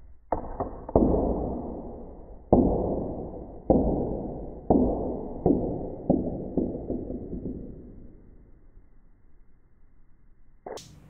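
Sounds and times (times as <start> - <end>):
ball bouncing on tabletop: 0.3 - 8.2.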